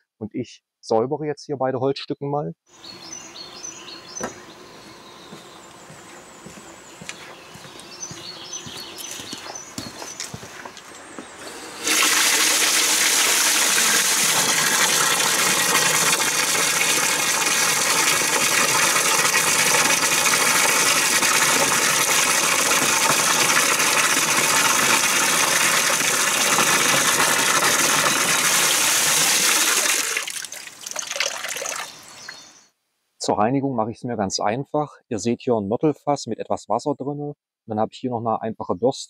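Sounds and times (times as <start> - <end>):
hose water splashing into tub: 11.4 - 32.0.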